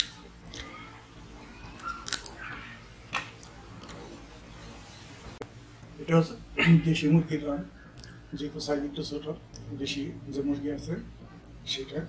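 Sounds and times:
man chewing food: 3.3 - 4.3
wet mouth clicks and smacks: 8.0 - 8.2.

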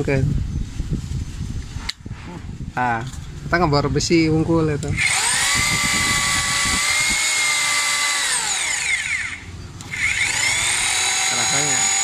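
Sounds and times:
rotary hammer motor whine: 4.9 - 12.0.

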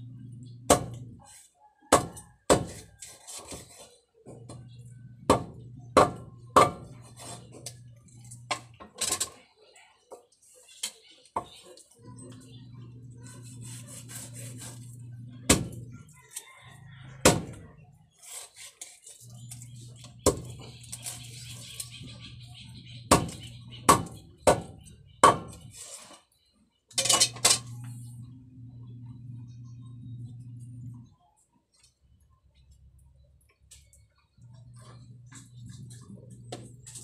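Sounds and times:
low steady hum: 0.0 - 1.2, 12.0 - 16.2, 27.0 - 37.0.

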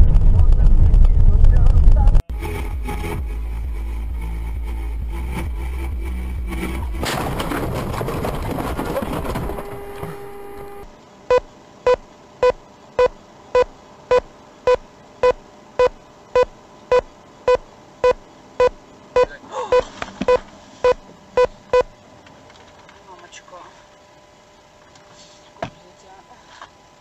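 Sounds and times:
car warning beeps: 9.6 - 21.9.

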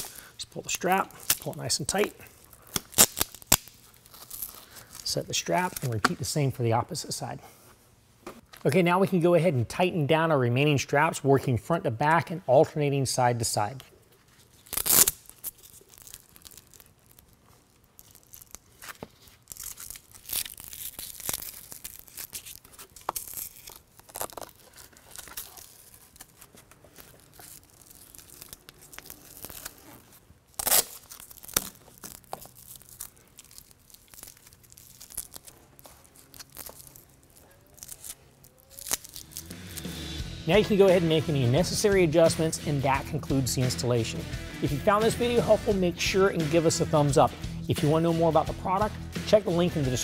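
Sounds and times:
loud sharp rips: 0.0 - 6.0, 14.4 - 40.2
straps zipping through buckles: 14.5 - 17.2, 18.0 - 40.2.

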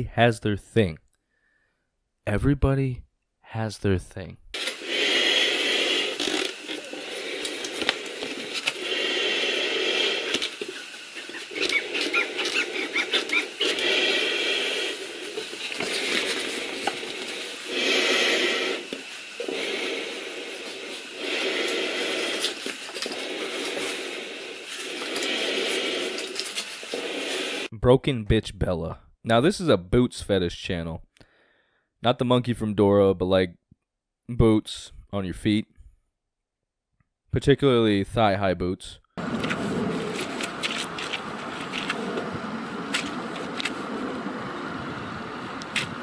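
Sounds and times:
gloved hand rubbing on mask: 4.6 - 27.7, 39.2 - 44.4
heavy breathing through gas mask: 4.6 - 27.7, 31.2 - 31.9
outdoor hiss: 4.6 - 27.7, 39.2 - 46.0
rubber boots in wet grass and mud: 39.2 - 44.2.

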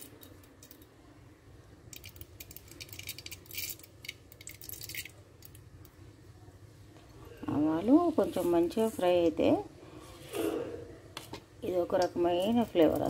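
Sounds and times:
mustard seeds crackling in oil: 1.8 - 6.0.

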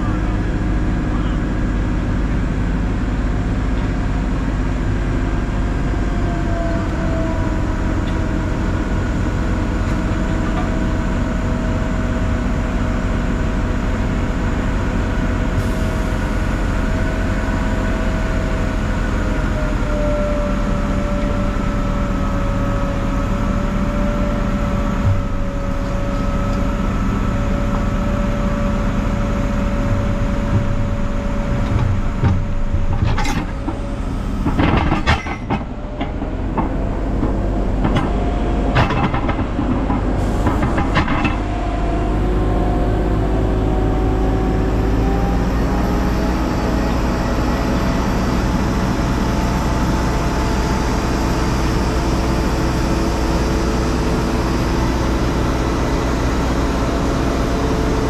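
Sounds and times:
crane diesel engine running: 0.0 - 58.0.

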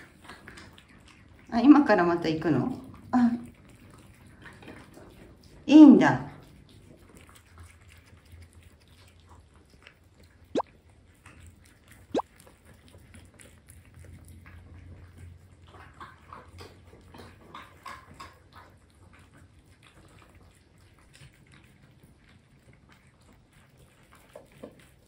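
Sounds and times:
cats chewing and licking: 0.0 - 25.0.

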